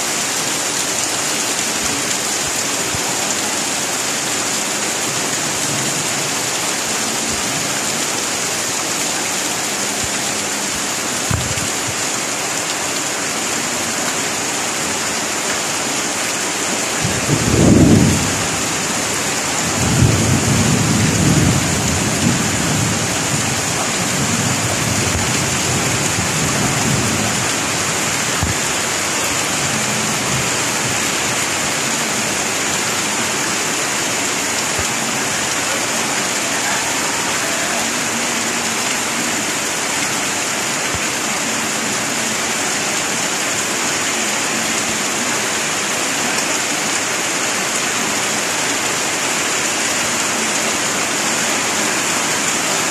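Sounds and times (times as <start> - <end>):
rain on pavement: 0.0 - 52.9.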